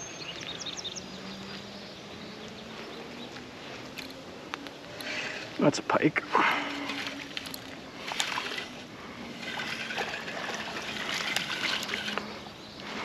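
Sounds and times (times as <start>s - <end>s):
river water trickling: 0.0s - 13.0s
light water splashing: 6.4s - 12.5s.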